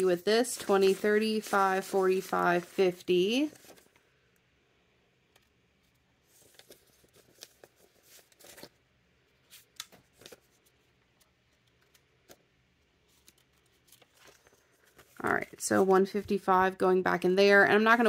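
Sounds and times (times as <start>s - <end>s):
paper banknotes rustling: 0.0s - 4.0s, 6.2s - 8.8s, 9.4s - 12.4s, 13.0s - 16.6s.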